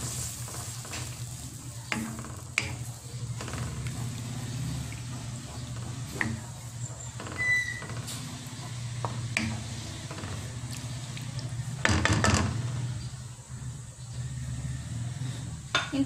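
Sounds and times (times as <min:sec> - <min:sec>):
spatula scraping metal wok: 0:00.0 - 0:16.0
loud knocks: 0:11.8 - 0:12.8.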